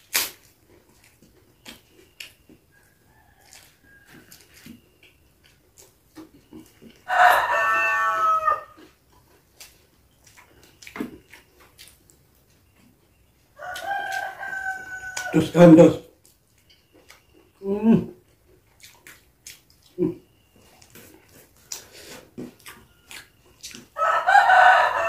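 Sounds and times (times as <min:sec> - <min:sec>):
rooster crowing: 0:02.7 - 0:04.4, 0:07.0 - 0:08.8, 0:13.6 - 0:15.5, 0:24.0 - 0:25.0.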